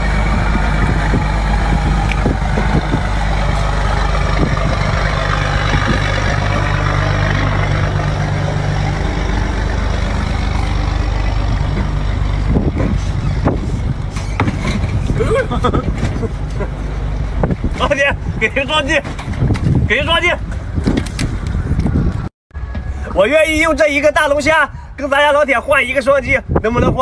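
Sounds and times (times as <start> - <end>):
boat engine idling: 0.0 - 18.5.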